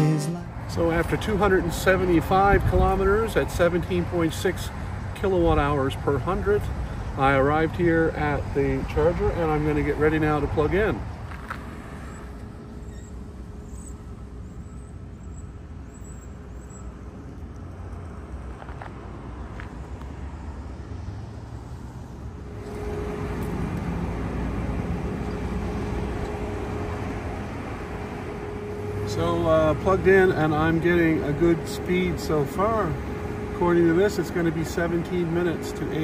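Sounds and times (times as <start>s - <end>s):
charging station hum: 22.3s - 36.0s.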